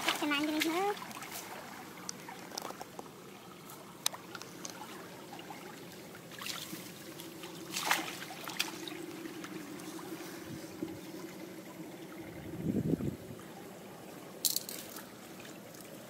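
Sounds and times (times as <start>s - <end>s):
light splashes: 0.0s - 12.6s
water trickling: 0.0s - 16.0s.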